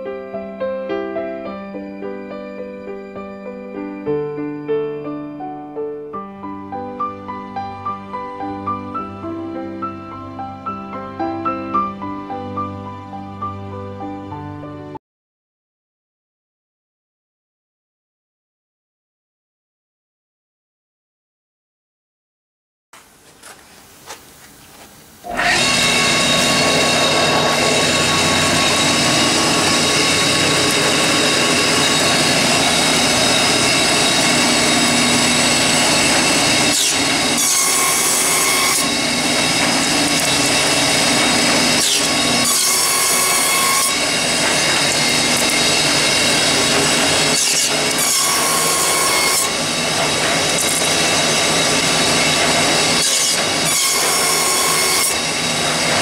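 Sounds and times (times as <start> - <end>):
harsh cutting of wooden strips: 25.2 - 56.0
stick slicer machine running: 25.2 - 56.0.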